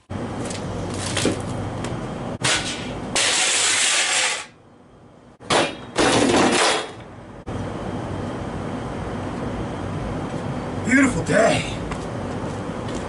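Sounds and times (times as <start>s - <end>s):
gear clattering on concrete: 2.4s - 4.6s, 5.5s - 7.1s.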